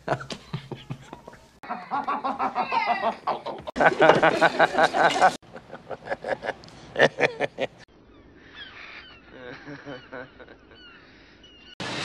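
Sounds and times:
man laughing: 0:00.0 - 0:07.8, 0:09.3 - 0:10.8.

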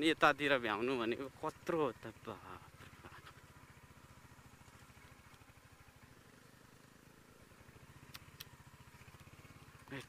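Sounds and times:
motorcycle engine idling: 0:00.0 - 0:10.0
sharp clicks: 0:08.0 - 0:08.6.

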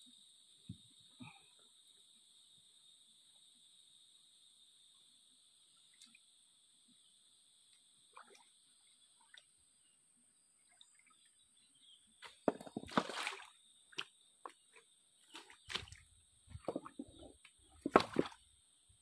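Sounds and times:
high insect drone: 0:00.0 - 0:10.5
water splashing in stream: 0:12.2 - 0:14.1, 0:15.3 - 0:18.4.

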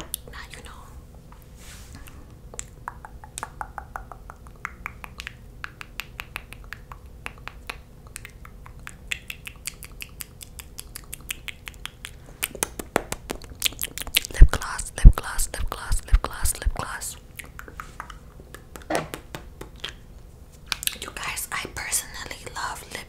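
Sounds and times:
wet mouth clicks: 0:02.1 - 0:18.9, 0:19.7 - 0:20.0, 0:20.7 - 0:21.4.

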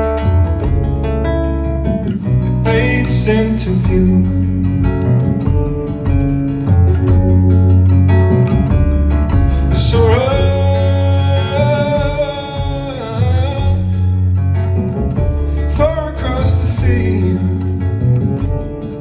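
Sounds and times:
live band playing: 0:00.0 - 0:19.0
person singing: 0:02.5 - 0:05.9, 0:09.4 - 0:18.2.

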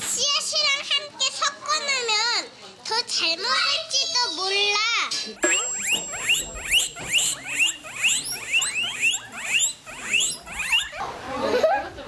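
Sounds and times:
guinea pigs wheeking: 0:05.4 - 0:12.0.

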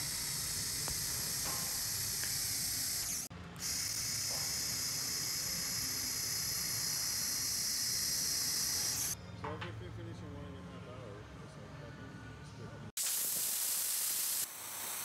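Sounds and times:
welding arc hissing: 0:00.0 - 0:09.2, 0:13.0 - 0:15.0.

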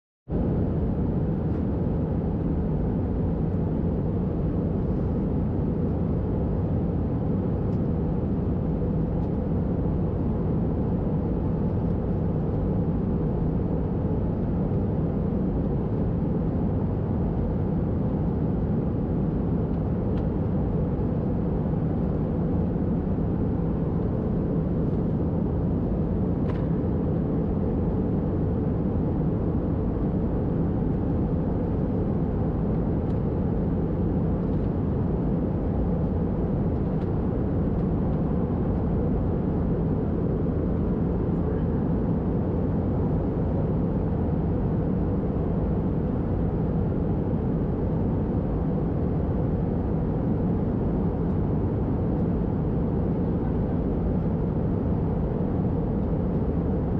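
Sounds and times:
steady low hum: 0:00.3 - 0:56.9
jet engines droning: 0:00.4 - 0:56.9.

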